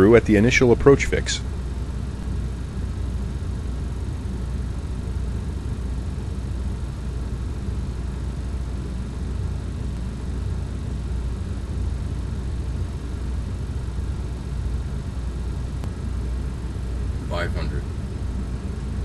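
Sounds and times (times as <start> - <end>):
low cockpit rumble: 0.0 - 19.0.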